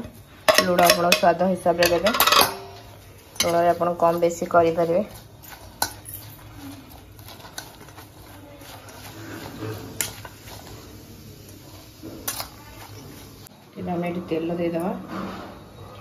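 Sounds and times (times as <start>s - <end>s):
spoon clinking against metal bowl: 0.5s - 4.3s, 5.4s - 6.5s
vegetables rustling and squishing: 2.8s - 13.8s.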